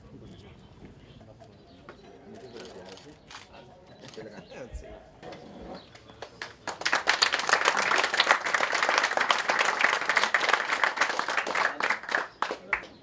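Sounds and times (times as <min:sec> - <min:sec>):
audience applauding: 0:06.2 - 0:12.9.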